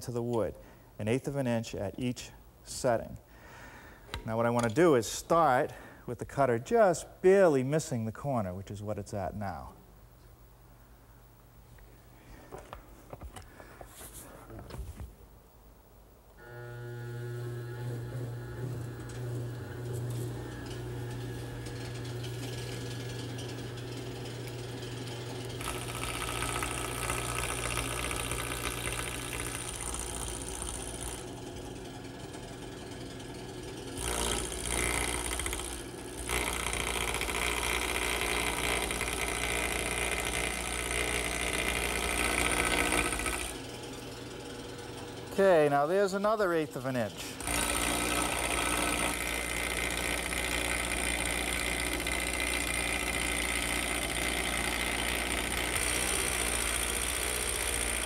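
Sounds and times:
cutter cutting spinning wood: 16.4s - 58.0s
wood lathe humming: 16.4s - 58.0s.

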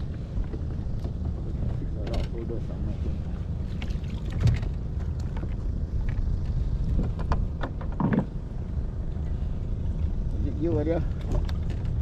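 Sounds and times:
wind rumbling on microphone: 0.0s - 12.0s
clicks and knocks of gear: 11.1s - 12.0s.

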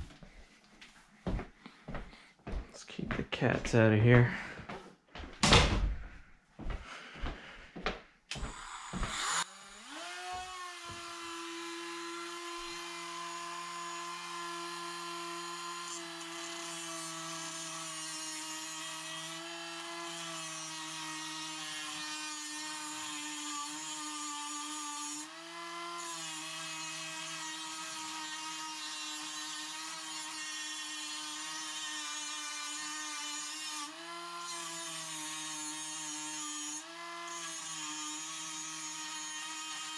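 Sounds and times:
rotary tool whining: 8.3s - 16.4s.

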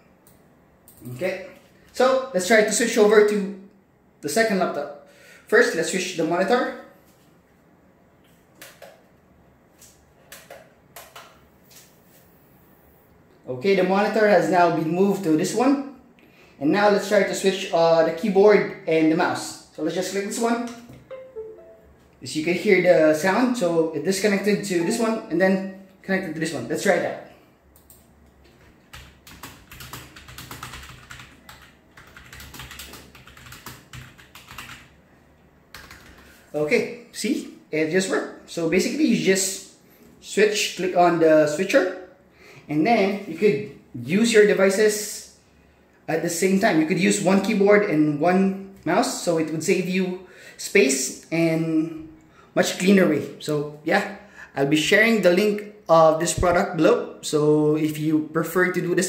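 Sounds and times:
fast typing on a keyboard: 10.3s - 11.4s, 28.8s - 35.0s, 35.7s - 36.4s.

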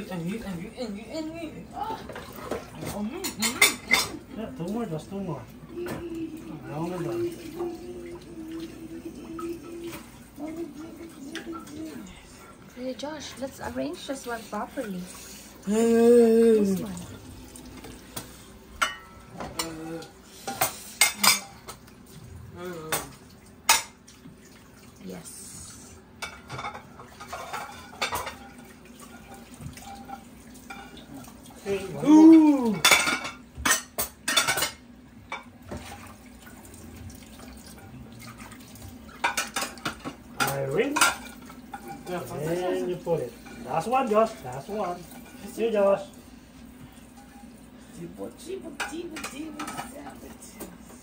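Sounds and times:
running water at sink: 0.0s - 51.0s
dishes clattering into rack: 2.0s - 4.2s, 18.8s - 19.8s, 26.2s - 31.1s, 32.7s - 36.0s.

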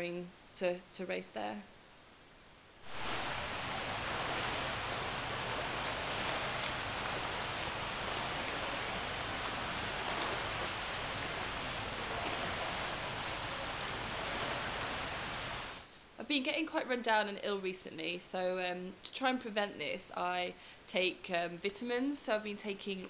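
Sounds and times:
water splashing in a pool: 2.8s - 15.9s.

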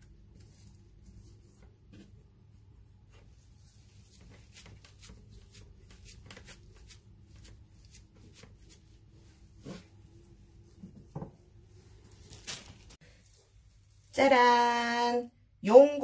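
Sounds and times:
seaweed sheet crinkling: 12.0s - 14.2s.

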